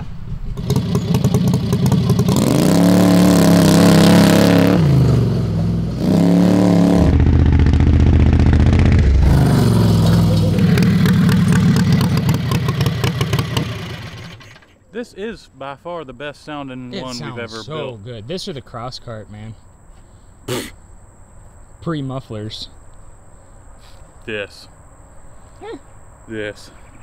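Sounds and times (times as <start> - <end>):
engine revving: 0.6 - 14.5.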